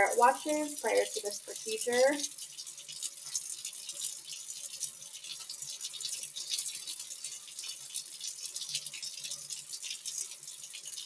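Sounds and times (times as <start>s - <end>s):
faucet running into sink: 0.0s - 11.0s.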